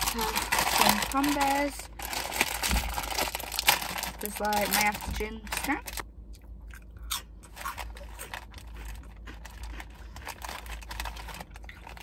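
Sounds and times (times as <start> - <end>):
person chewing crunchy snack: 6.3 - 12.0.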